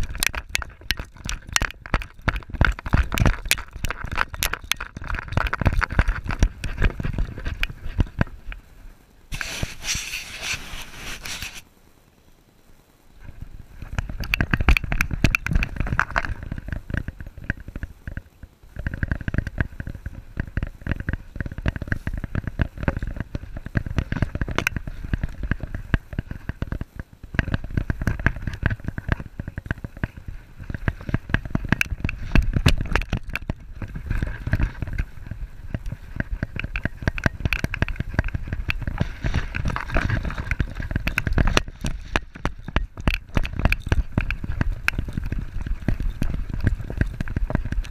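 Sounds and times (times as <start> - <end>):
rapid knocks and scrapes: 0.0 - 8.6, 9.3 - 11.6, 13.8 - 47.9
sand spraying: 9.3 - 11.7.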